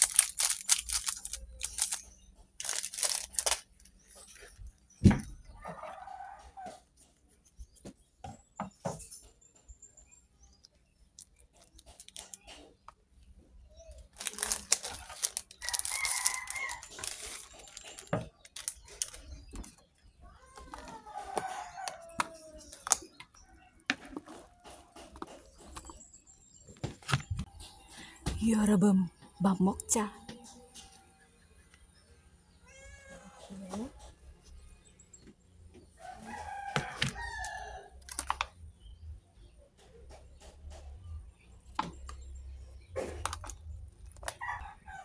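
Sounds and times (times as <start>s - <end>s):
scissors cutting plastic: 0.0s - 4.0s, 14.1s - 19.4s
plastic sachets rustling: 0.0s - 4.4s, 14.0s - 19.7s
rooster crowing: 15.6s - 17.0s, 20.8s - 22.6s, 36.0s - 37.9s.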